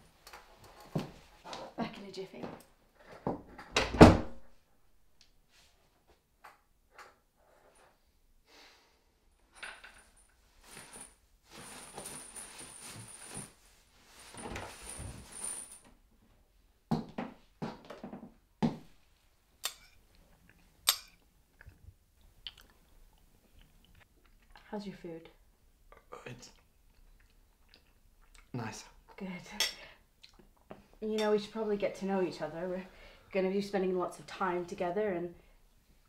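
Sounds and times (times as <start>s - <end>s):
door shutting with a thud: 3.6s - 4.4s
soft rustling: 10.1s - 15.9s.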